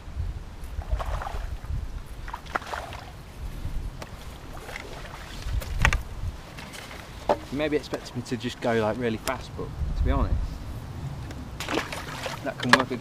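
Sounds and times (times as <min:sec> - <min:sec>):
wind buffeting microphone: 0:00.0 - 0:13.0
soft water splashes: 0:00.7 - 0:05.8, 0:11.6 - 0:12.9.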